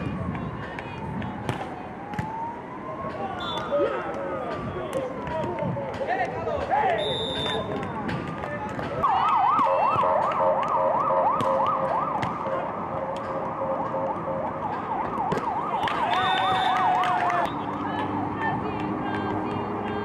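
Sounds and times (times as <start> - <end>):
volleyball slaps: 0.7 - 2.4, 7.4 - 12.5, 15.0 - 17.6
siren yelping: 1.7 - 4.7, 9.0 - 17.7.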